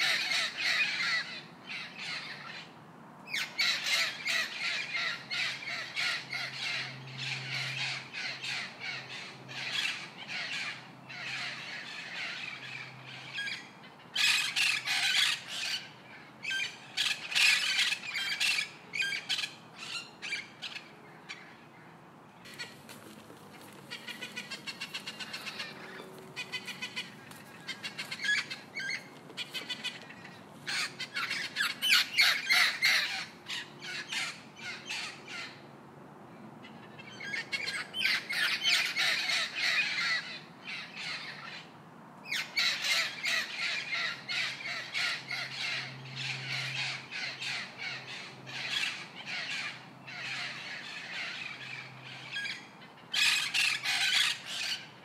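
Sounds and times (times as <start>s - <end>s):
cockatoo squawking: 23.5s - 35.6s.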